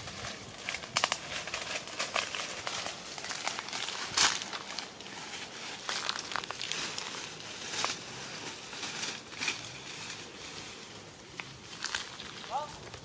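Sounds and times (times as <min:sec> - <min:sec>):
dry leaves rustling and crackling: 0:00.0 - 0:13.0
twigs snapping: 0:00.2 - 0:08.0, 0:11.3 - 0:13.0.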